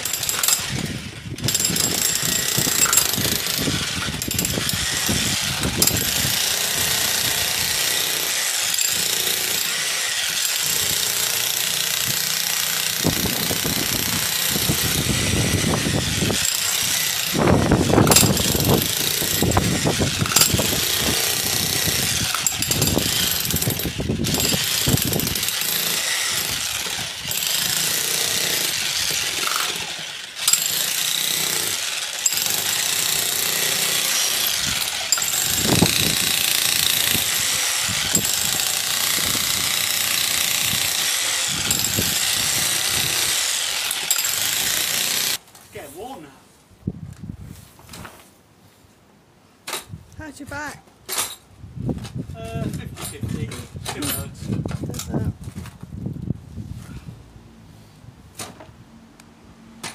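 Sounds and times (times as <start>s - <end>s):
electric breaker hammering ground: 0.0s - 45.4s
wind buffeting microphone: 0.6s - 7.7s, 13.0s - 25.5s, 34.6s - 39.9s, 40.5s - 43.3s, 51.6s - 57.2s.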